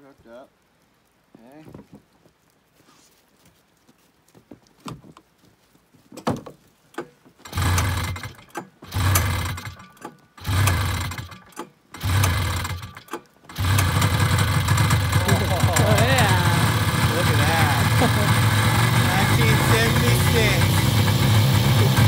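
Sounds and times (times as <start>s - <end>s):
recoil starter pulls: 6.9s - 22.0s
snowmobile engine sputtering: 7.4s - 11.4s, 12.0s - 12.9s, 13.5s - 22.0s.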